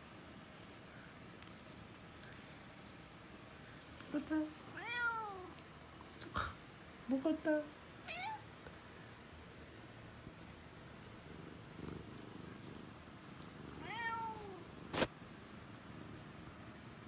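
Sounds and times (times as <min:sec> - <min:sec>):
cat meowing: 0:04.7 - 0:05.5, 0:08.0 - 0:08.4, 0:13.8 - 0:14.6.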